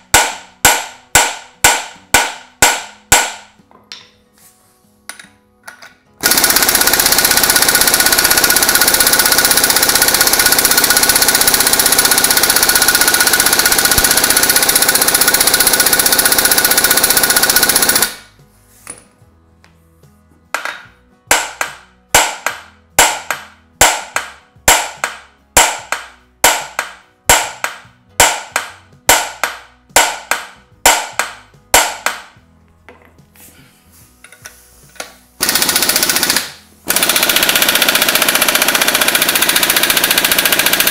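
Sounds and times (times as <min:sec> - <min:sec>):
impact wrench hammering: 0:00.0 - 0:04.2, 0:05.1 - 0:18.3, 0:20.6 - 0:33.1, 0:34.2 - 0:40.9.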